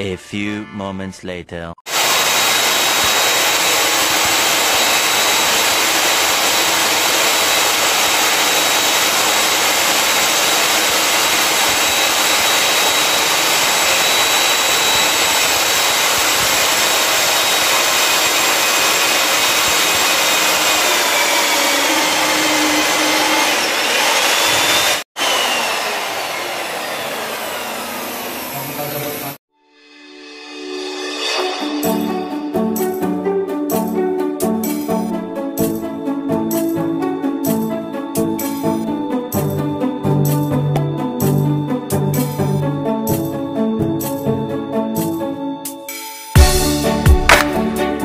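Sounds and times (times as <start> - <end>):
core drill grinding into concrete: 1.9 - 29.3.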